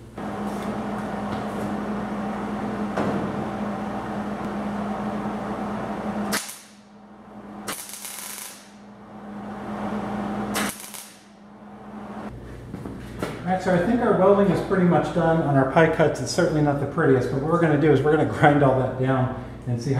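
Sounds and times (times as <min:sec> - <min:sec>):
welding arc crackling: 0:06.1 - 0:06.9, 0:07.6 - 0:08.9, 0:09.9 - 0:11.4.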